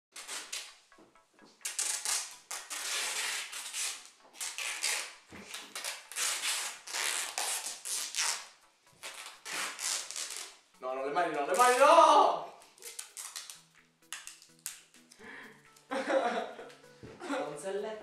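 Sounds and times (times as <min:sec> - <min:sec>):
adhesive tape ripping off roll: 0:00.1 - 0:00.8, 0:01.6 - 0:10.7, 0:11.4 - 0:12.0, 0:12.6 - 0:15.8.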